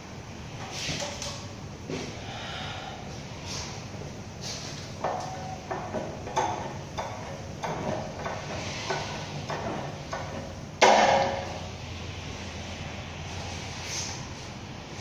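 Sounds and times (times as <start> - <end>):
loud metallic clank: 10.8 - 11.7.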